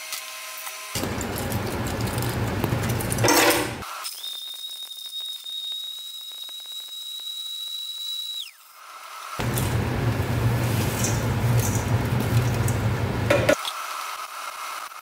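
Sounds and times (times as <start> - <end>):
blender grinding with clatter: 0.0 - 4.8
blender motor high whine: 3.9 - 9.5.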